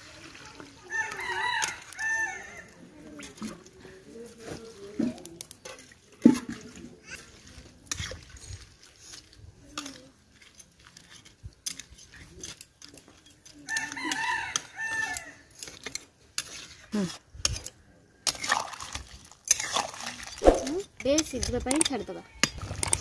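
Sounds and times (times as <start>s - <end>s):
rooster crowing: 0.9s - 2.7s, 13.7s - 15.4s
metal spatula scraping a pot: 5.6s - 13.6s, 15.5s - 18.6s, 19.4s - 19.8s.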